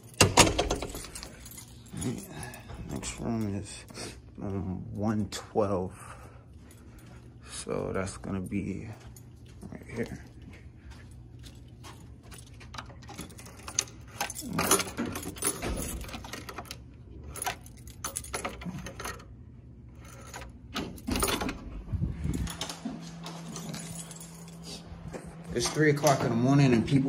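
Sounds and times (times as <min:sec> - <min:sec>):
door lock and handle clicking: 0:00.0 - 0:01.6, 0:20.3 - 0:21.7
keys jangling: 0:00.0 - 0:04.0, 0:08.1 - 0:19.3, 0:20.0 - 0:26.4
low hum: 0:00.2 - 0:27.0.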